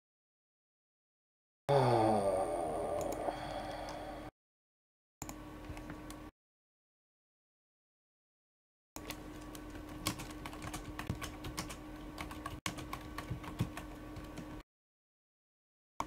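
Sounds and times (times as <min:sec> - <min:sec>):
faint steady hum: 0:01.7 - 0:04.3.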